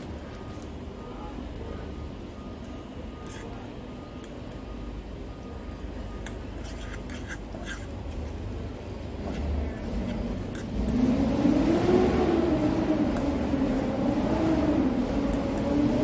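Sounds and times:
light sizzle: 0.0s - 16.0s
steady low rumble: 8.0s - 16.0s.

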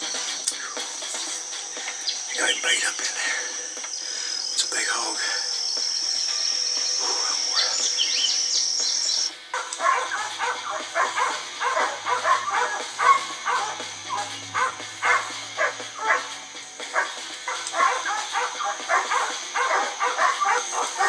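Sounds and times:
hounds baying: 9.2s - 21.0s.

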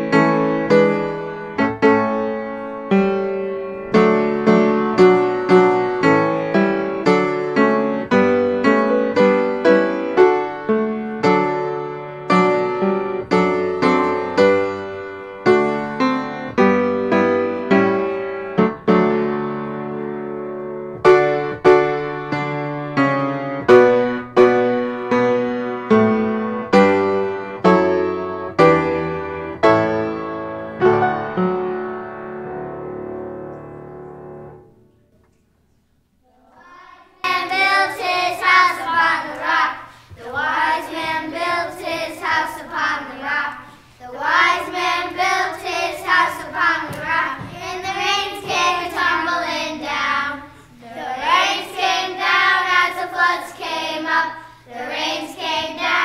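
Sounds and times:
piano notes: 0.0s - 36.1s, 37.2s - 56.0s
children singing together: 36.2s - 56.0s.

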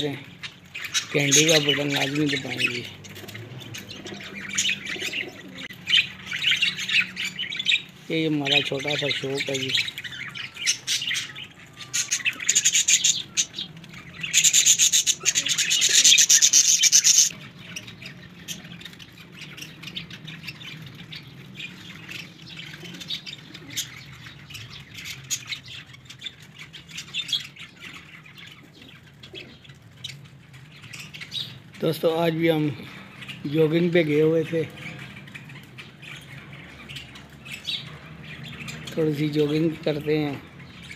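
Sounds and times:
pigeon calls: 0.0s - 40.9s
pigeons pecking and shuffling: 26.0s - 31.9s.

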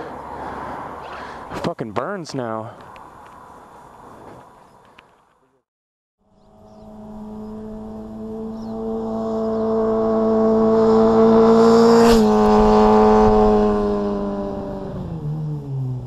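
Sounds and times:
motorcycle passing at speed: 6.2s - 16.0s.

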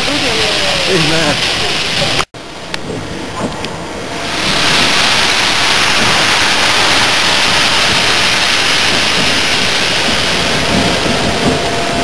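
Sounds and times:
steam locomotive venting steam: 0.0s - 12.0s.

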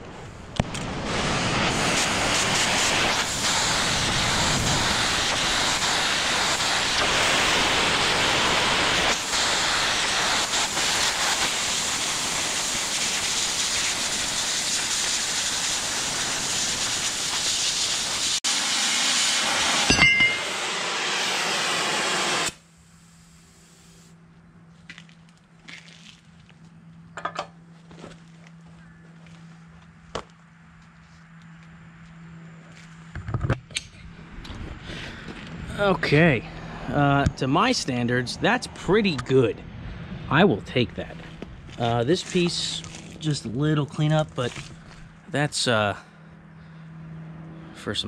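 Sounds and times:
cutting torch hissing: 0.0s - 24.1s, 41.7s - 44.7s.

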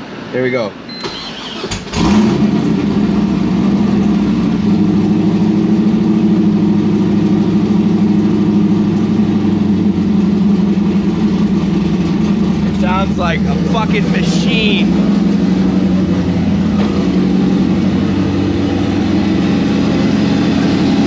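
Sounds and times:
engine starting and high idling: 0.9s - 4.0s.

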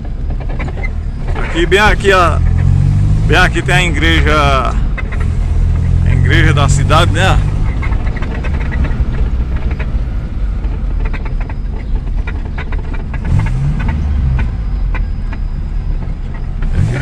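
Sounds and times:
car engine and road rumble: 0.0s - 17.0s
small rattles and knocks: 7.5s - 16.8s.

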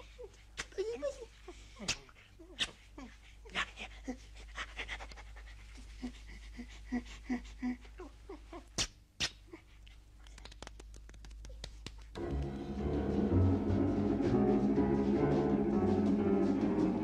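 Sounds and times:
rapid panting breaths: 1.4s - 8.0s
orchestral music with timpani: 12.2s - 17.0s.

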